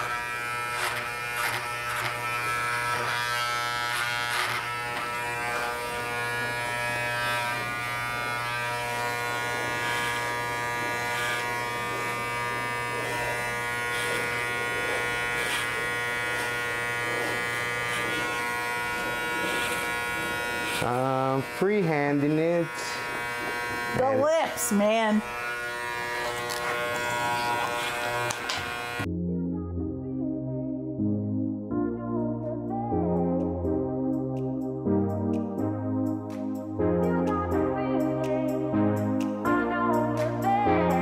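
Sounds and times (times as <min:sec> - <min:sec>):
electric hair clippers buzzing: 0:00.0 - 0:29.1, 0:37.2 - 0:41.0.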